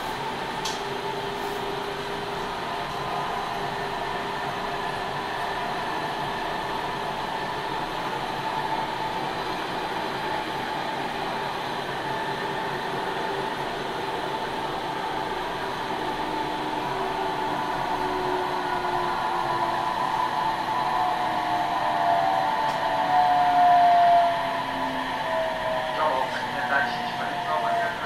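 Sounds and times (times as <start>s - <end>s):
train wheels rushing on rail: 0.0s - 28.0s.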